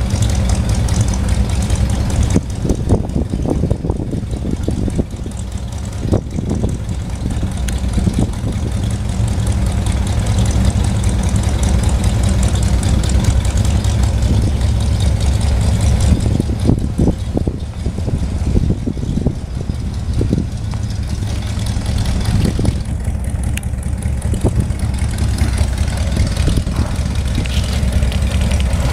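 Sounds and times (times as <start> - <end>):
truck engine rumbling: 0.0 - 28.9.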